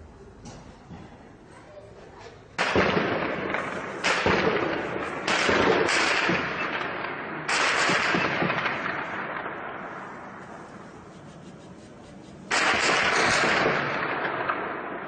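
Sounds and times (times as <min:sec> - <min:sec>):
loud bangs with echo: 0:02.6 - 0:10.4, 0:12.4 - 0:15.0.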